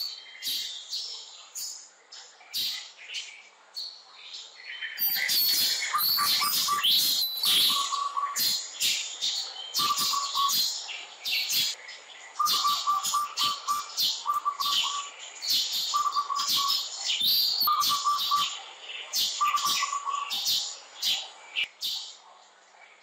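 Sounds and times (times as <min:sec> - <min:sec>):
birds chirping: 0:00.0 - 0:23.0
low pulsed bird trill: 0:05.0 - 0:08.4, 0:11.3 - 0:18.6.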